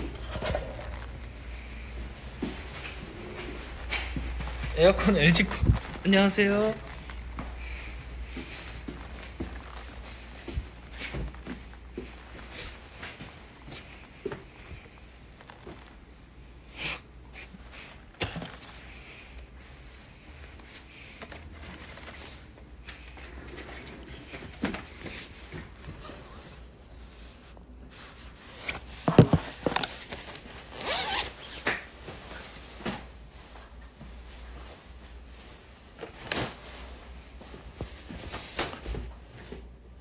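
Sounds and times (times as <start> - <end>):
nylon jacket rustling: 0.0 - 16.4, 18.8 - 38.6
zipper being run: 30.8 - 31.6.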